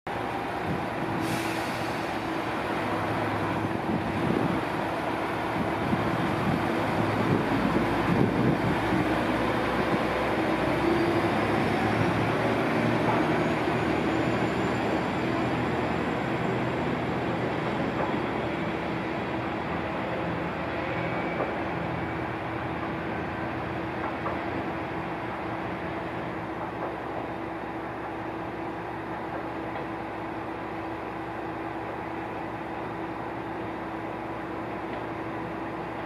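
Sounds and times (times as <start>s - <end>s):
diesel railcar engine accelerating: 0.1s - 36.0s
short hiss: 1.2s - 2.3s.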